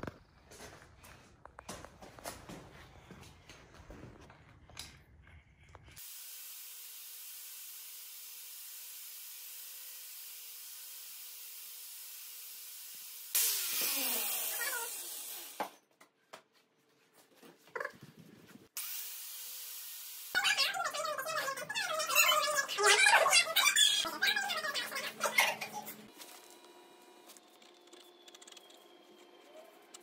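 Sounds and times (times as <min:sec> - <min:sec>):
angle grinder whining: 0:06.0 - 0:15.8
grinder cutting steel: 0:06.0 - 0:15.8, 0:18.8 - 0:22.9.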